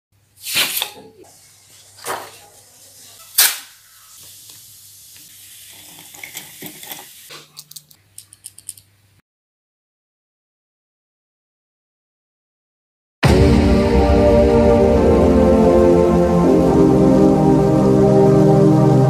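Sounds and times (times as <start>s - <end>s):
paper and plastic rustling: 1.7s - 3.6s.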